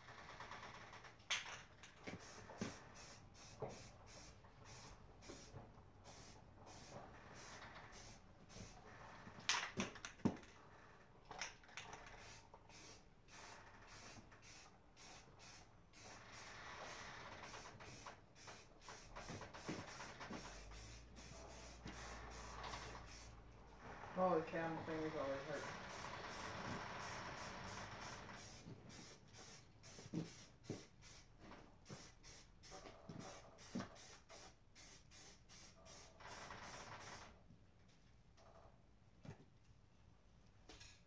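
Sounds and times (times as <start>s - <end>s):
spray paint can hissing: 2.0s - 8.8s, 12.0s - 23.4s, 25.5s - 37.3s.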